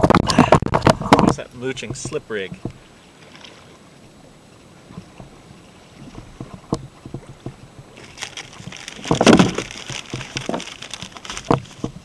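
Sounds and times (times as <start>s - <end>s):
gear knocking on kayak: 0.0s - 2.8s, 6.0s - 12.0s
water sloshing: 0.0s - 12.0s.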